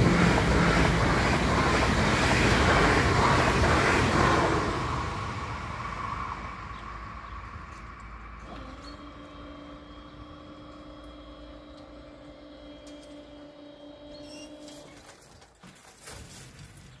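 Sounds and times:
barrier motors humming: 6.6 - 15.4.

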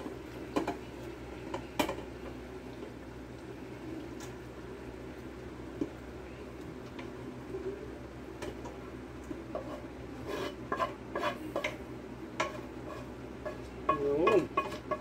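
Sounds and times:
utensil scraping in metal pot: 9.5 - 11.8, 12.4 - 15.0.

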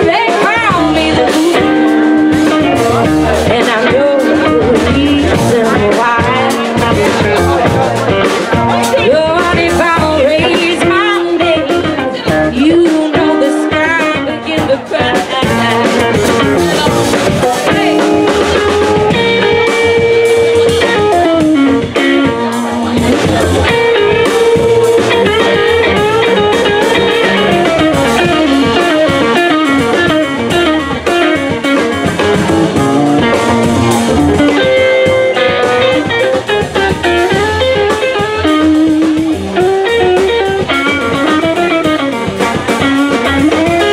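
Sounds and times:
drum kit: 0.0 - 43.9
electric guitar: 0.0 - 43.9
swing band playing: 0.0 - 43.9
upright bass: 0.0 - 43.9
voice or melody line: 0.0 - 43.9.

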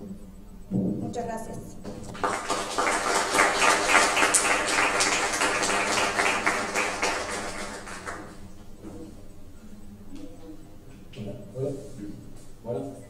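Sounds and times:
audience applauding: 2.0 - 8.5.

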